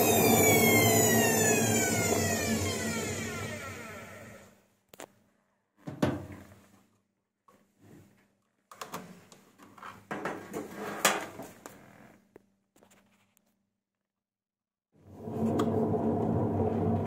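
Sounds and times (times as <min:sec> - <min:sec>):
drum rumbling and scraping: 0:15.1 - 0:17.0.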